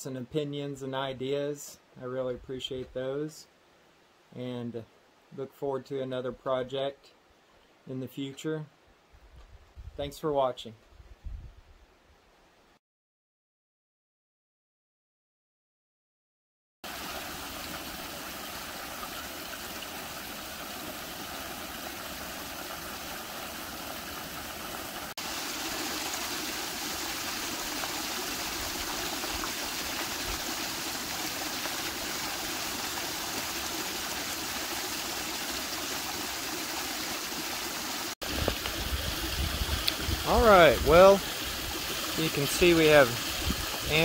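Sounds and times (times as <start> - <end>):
water pouring and splashing: 16.8 - 44.0.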